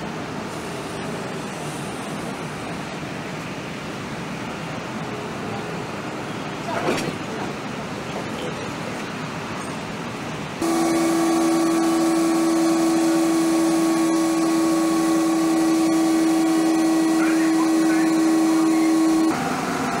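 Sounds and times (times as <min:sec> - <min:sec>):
locomotive electrical hum: 0:00.0 - 0:20.0
train rumbling: 0:00.0 - 0:20.0.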